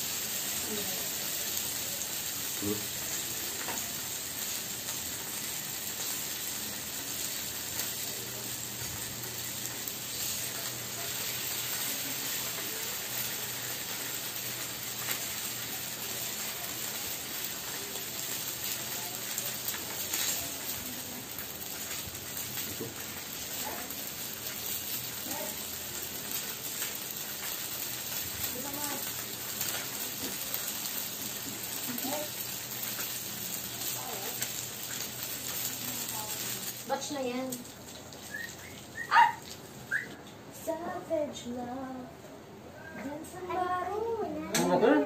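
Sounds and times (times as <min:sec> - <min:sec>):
meat sizzling on a grill plate: 0:00.0 - 0:40.1.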